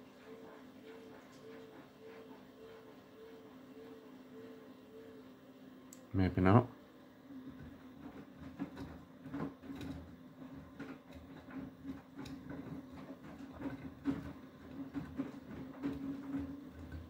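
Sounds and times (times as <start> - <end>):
washing machine motor hum: 0.0 - 17.0.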